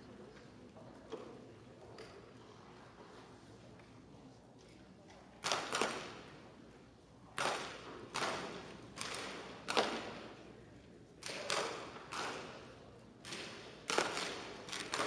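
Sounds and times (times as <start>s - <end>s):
bb gun shots echoing: 5.4s - 6.3s, 7.4s - 10.4s, 11.2s - 15.0s.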